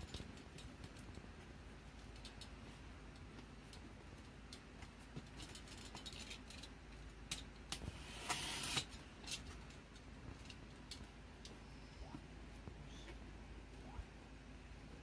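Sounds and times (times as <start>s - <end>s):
box cutter slitting tape: 7.7s - 8.9s.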